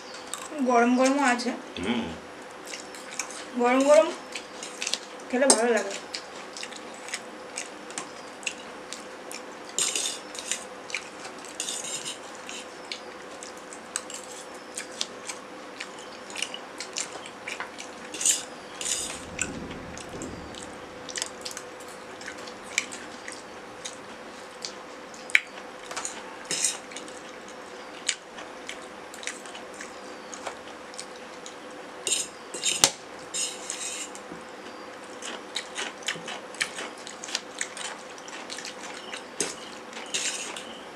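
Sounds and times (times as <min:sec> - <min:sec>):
faint steady hum: 0:00.0 - 0:35.2.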